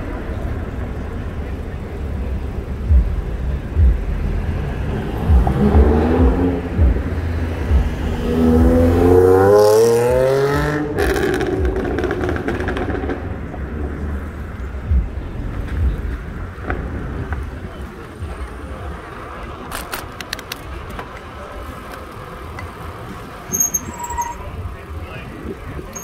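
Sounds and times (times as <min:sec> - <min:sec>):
street traffic rumble: 0:00.0 - 0:26.0
vehicle engine revving: 0:01.5 - 0:17.8
low thumps: 0:02.9 - 0:09.5, 0:14.8 - 0:18.4.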